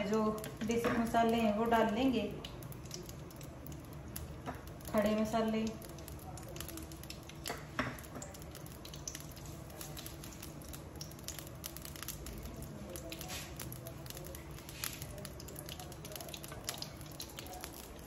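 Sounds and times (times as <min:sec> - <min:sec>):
spices sizzling in hot fat: 0:00.0 - 0:18.0.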